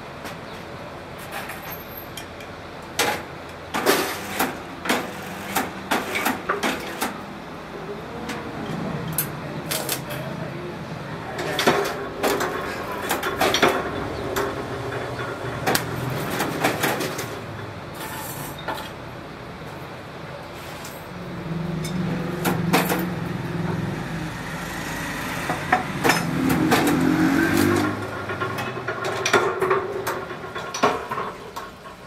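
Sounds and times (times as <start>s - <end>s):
welding machine clicks and clanks: 1.4s - 7.2s, 8.3s - 10.3s, 11.4s - 19.0s, 25.4s - 32.0s.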